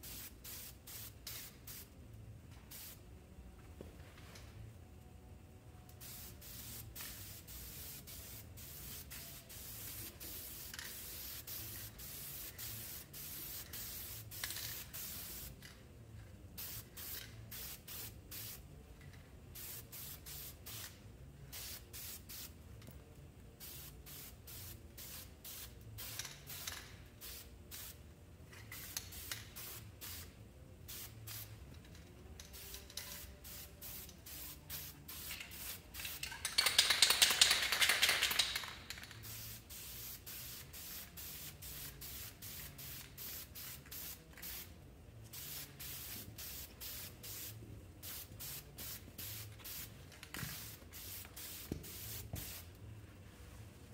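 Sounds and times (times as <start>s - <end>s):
aerosol spray can hissing: 0.0s - 1.9s, 6.0s - 15.6s, 23.6s - 28.0s, 32.6s - 44.7s, 45.3s - 52.7s.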